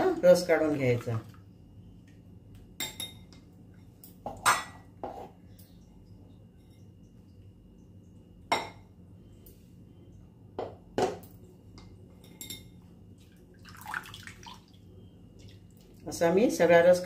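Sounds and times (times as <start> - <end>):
faint low hum: 0.0 - 17.0
spoon clinking on strainer and bowl: 2.8 - 4.8, 12.2 - 12.8.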